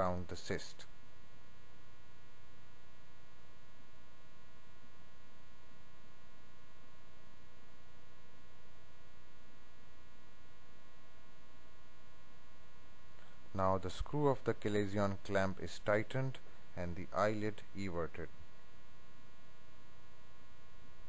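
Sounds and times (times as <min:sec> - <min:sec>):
electrical mains hum: 0:00.0 - 0:21.0.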